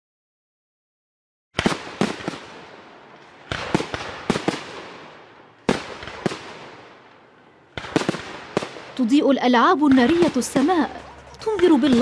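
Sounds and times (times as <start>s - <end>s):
fireworks bursting in sharp bangs: 1.6s - 9.2s, 9.8s - 12.0s.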